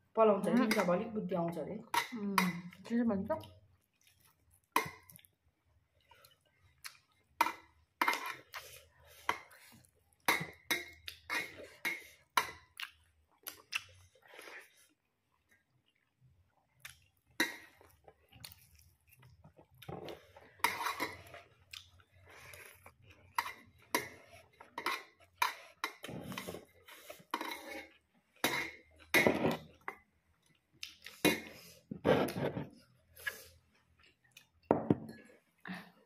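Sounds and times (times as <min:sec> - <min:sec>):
chewing and mouth noises: 0:10.9 - 0:28.1, 0:29.7 - 0:31.4.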